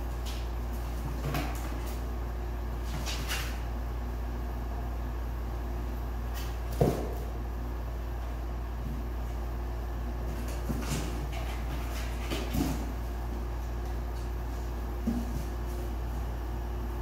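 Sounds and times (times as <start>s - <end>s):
steady low hum: 0.0s - 17.0s
paws scratching cardboard: 10.2s - 16.3s.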